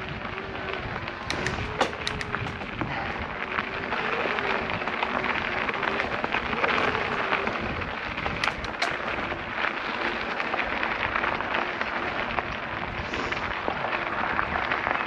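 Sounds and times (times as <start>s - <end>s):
wind noise on microphone: 0.0s - 15.0s
sharp clicks: 1.2s - 2.8s, 8.4s - 9.2s.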